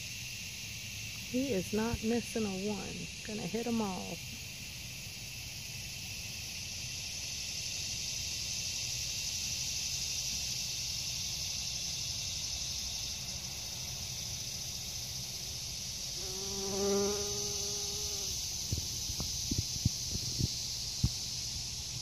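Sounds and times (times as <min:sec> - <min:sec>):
high-pitched insect chorus: 0:00.0 - 0:22.0
bumblebee buzzing close by: 0:16.1 - 0:20.5.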